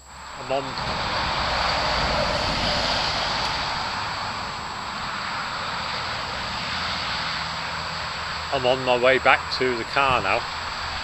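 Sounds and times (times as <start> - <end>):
passing vehicle rushing: 0.0 - 11.0.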